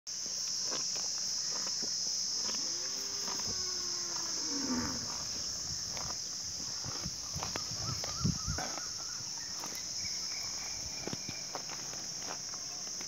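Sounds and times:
high-pitched insect drone: 0:00.2 - 0:13.0
cattle mooing: 0:02.6 - 0:05.5.

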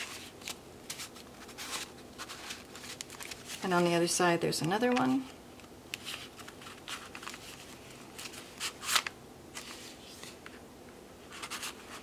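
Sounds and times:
paper rustling: 0:00.0 - 0:03.6, 0:06.0 - 0:10.6, 0:11.3 - 0:12.0.

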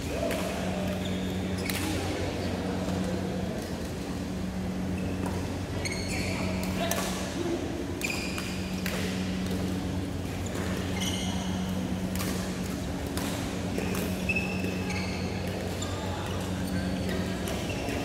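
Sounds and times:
low electrical hum: 0:00.0 - 0:18.0
sneakers squeaking on floor: 0:00.8 - 0:01.8, 0:04.8 - 0:06.8, 0:10.4 - 0:12.0, 0:13.8 - 0:18.0
rackets striking shuttlecocks: 0:11.7 - 0:14.8.

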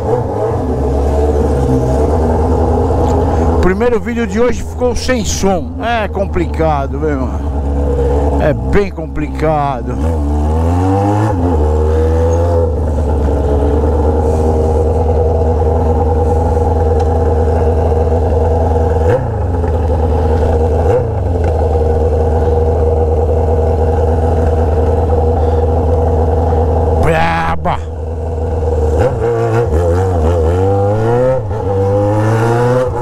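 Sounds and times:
motorcycle idling loudly: 0:00.6 - 0:10.0, 0:12.6 - 0:29.0
motorcycle throttle blips: 0:09.9 - 0:26.9.

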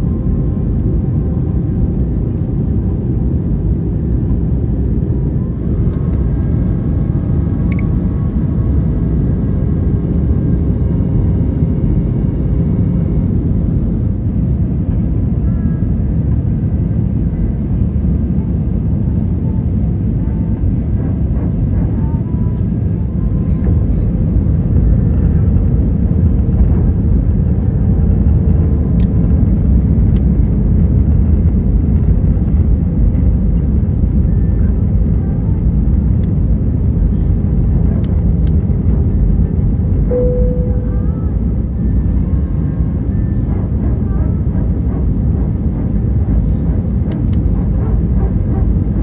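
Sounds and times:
airplane cabin engine roar: 0:00.0 - 0:49.0
cabin chime ding: 0:40.1 - 0:41.2.

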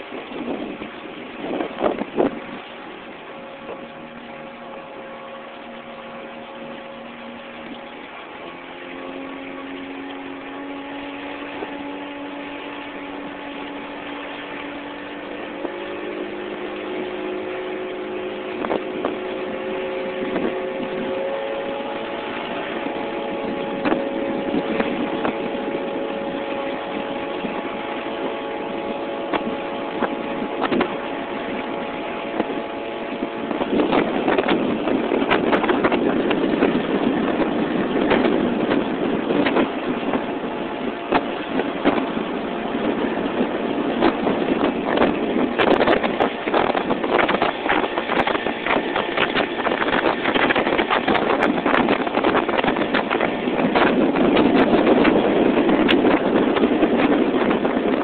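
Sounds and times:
outboard motor running: 0:00.0 - 0:58.0.

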